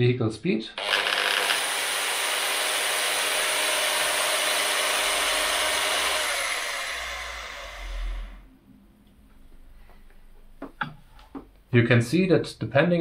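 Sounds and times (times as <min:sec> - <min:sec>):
electric drill whining: 0:00.8 - 0:08.5.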